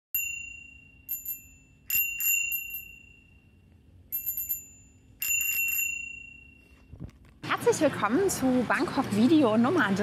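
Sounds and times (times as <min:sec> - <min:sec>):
bicycle bell dings: 0:00.1 - 0:06.9.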